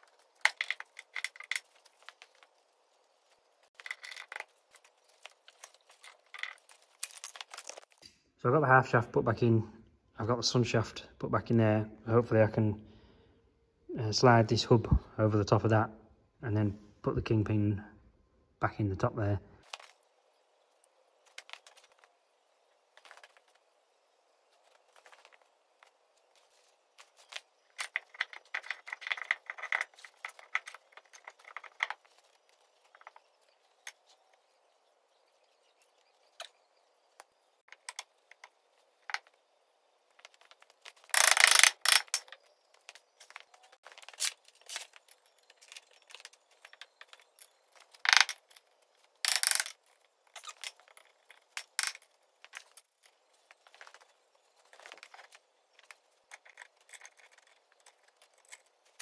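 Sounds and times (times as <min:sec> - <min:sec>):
metal parts clinking and scraping: 0:00.0 - 0:08.0, 0:24.6 - 0:34.5, 0:37.7 - 0:59.0.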